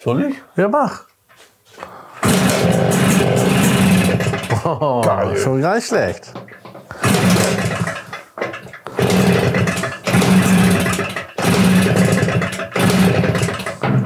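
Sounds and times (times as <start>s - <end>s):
two-stroke engine revving: 2.2s - 4.6s, 7.0s - 8.1s, 8.9s - 13.8s.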